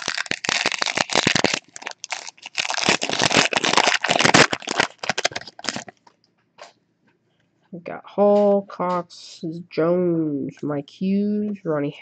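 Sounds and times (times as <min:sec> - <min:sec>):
foil wrapper crinkling and tearing: 0:00.0 - 0:06.0.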